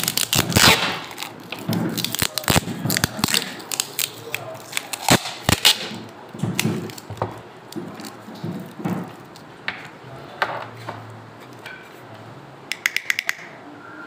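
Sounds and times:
tape rustling and crackling: 0:00.0 - 0:10.0.

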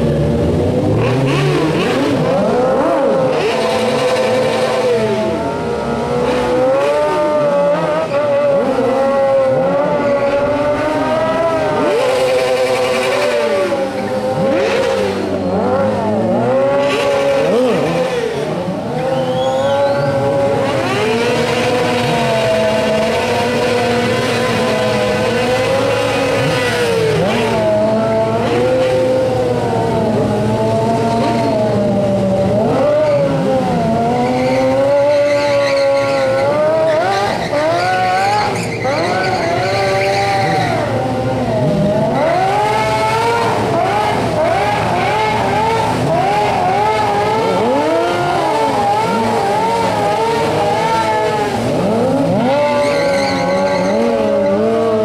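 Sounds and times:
motorcycle engines revving: 0:00.0 - 0:55.0
tyre squeal: 0:11.8 - 0:16.0, 0:18.9 - 0:21.0, 0:34.2 - 0:40.9, 0:52.4 - 0:54.8.

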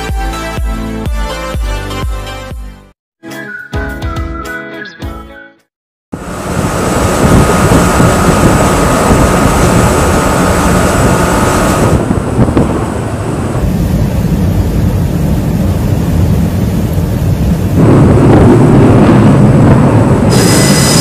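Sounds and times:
engine noise: 0:06.2 - 0:21.0
rushing wind: 0:06.2 - 0:21.0.

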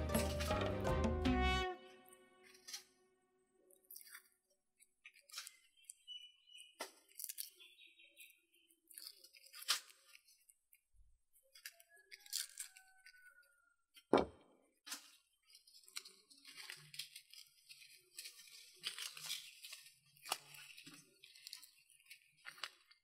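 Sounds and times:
dried chillies crackling: 0:03.7 - 0:13.2, 0:14.8 - 0:23.0
onion skin crackling and tearing: 0:03.7 - 0:13.4, 0:14.8 - 0:23.0.

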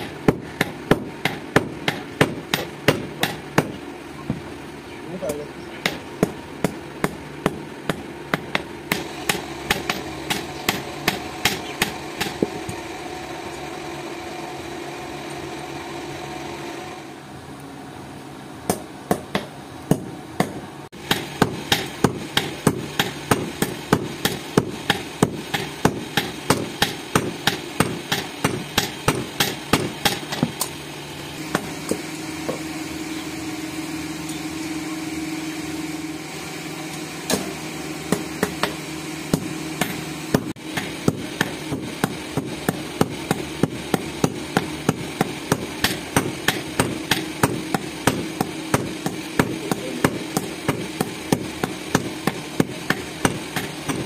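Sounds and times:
hammer striking steel: 0:00.0 - 0:03.8, 0:05.3 - 0:12.8, 0:18.7 - 0:30.7, 0:37.3 - 0:54.0
steady hum: 0:00.0 - 0:54.0.

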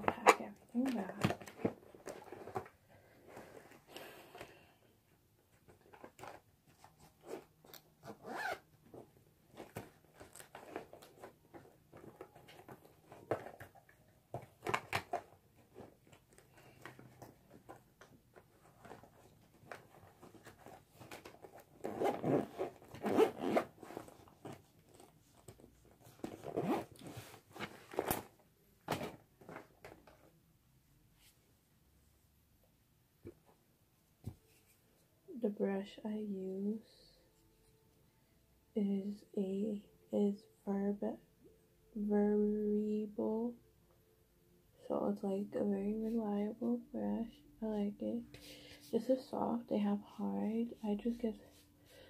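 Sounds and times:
zip being pulled: 0:07.3 - 0:08.7, 0:21.8 - 0:24.6, 0:26.2 - 0:27.4
makeup cases clicking and rustling: 0:09.0 - 0:23.0, 0:23.6 - 0:30.3.

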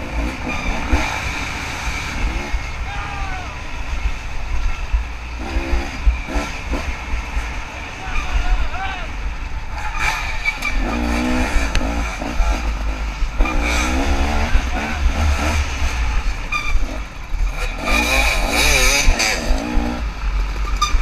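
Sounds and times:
dirt bike engine revving: 0:00.0 - 0:08.5, 0:09.7 - 0:21.0.

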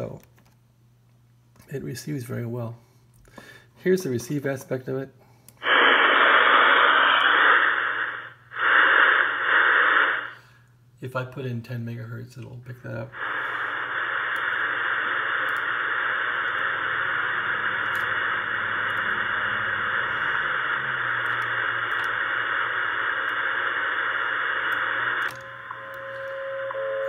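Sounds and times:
radio static hiss: 0:04.0 - 0:10.6, 0:12.8 - 0:27.0
steady radio tone: 0:05.6 - 0:10.4, 0:13.1 - 0:27.0.

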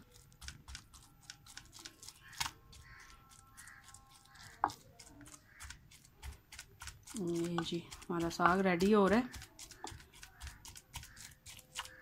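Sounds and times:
pestle pounding in wooden mortar: 0:00.1 - 0:12.0.

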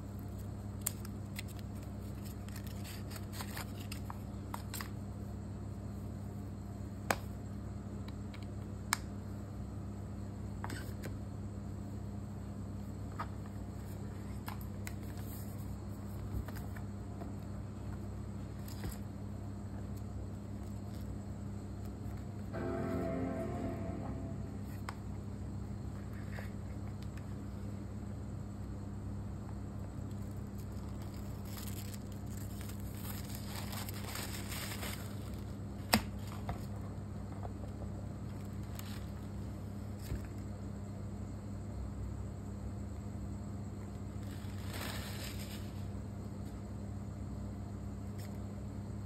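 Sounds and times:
steady low hum: 0:11.2 - 0:33.3.

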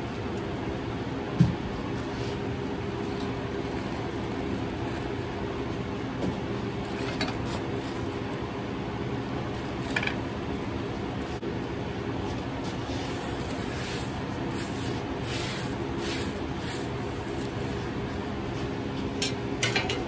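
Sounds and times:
kitchen equipment humming: 0:00.0 - 0:20.0.

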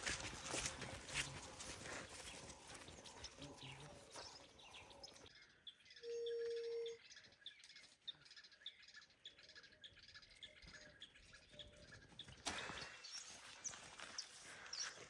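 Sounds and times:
birds chirping: 0:00.0 - 0:15.0
low whistle-like tone: 0:06.0 - 0:07.0.

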